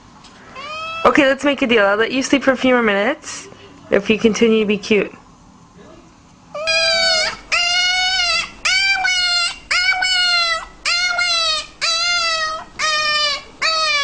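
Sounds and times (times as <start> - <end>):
puppy yelping: 6.5 - 14.0.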